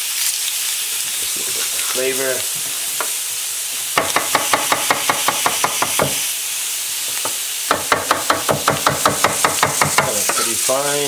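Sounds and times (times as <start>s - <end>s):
fish sizzling in a hot pan: 0.0s - 11.0s
knife chopping on wooden board: 4.0s - 6.2s, 7.2s - 10.4s.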